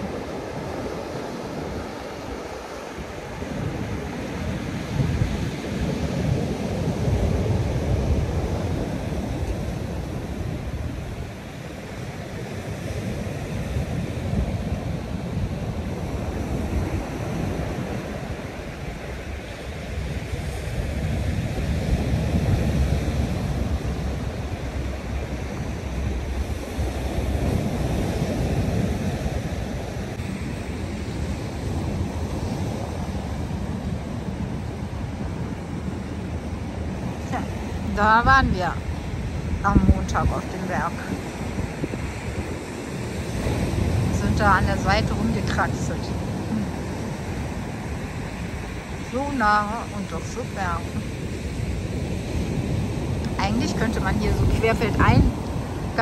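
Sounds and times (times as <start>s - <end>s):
heavy surf breaking on beach: 0.0s - 56.0s
wind buffeting microphone: 0.0s - 56.0s.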